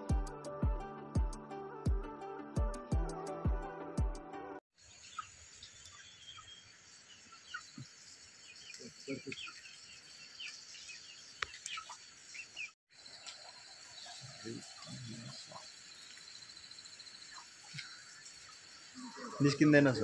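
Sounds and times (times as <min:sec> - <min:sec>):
high insect hum: 0:04.8 - 0:20.0.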